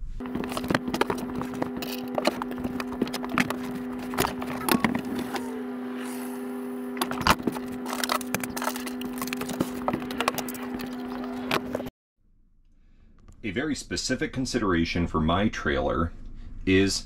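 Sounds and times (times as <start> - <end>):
steady hum: 0.0 - 11.9.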